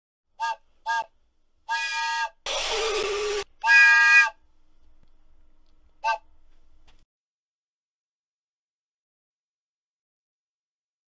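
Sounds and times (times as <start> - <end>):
toy train whistle toots: 0.4 - 1.1, 1.7 - 4.4, 6.0 - 6.3.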